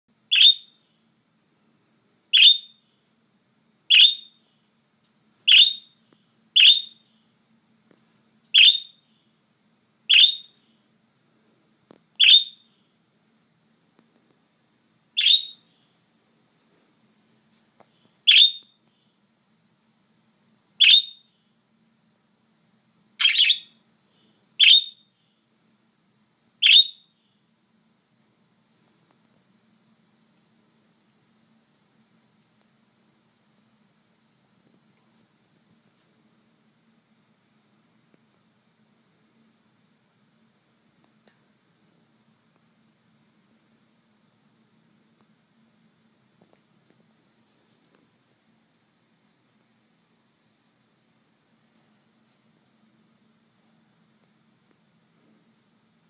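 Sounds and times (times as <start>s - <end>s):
budgerigar chirping: 0.3s - 0.8s, 2.3s - 2.8s, 3.9s - 4.4s, 5.5s - 6.0s, 6.6s - 7.0s, 8.6s - 9.0s, 10.1s - 10.6s, 12.2s - 12.7s, 15.2s - 15.7s, 18.3s - 18.7s, 20.8s - 21.2s, 23.2s - 23.8s, 24.6s - 25.0s, 26.6s - 27.0s.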